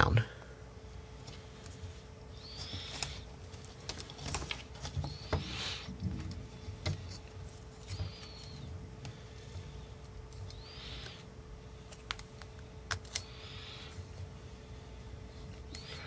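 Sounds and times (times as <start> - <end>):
handling clicks and crinkles: 2.6 - 5.2, 11.8 - 13.3.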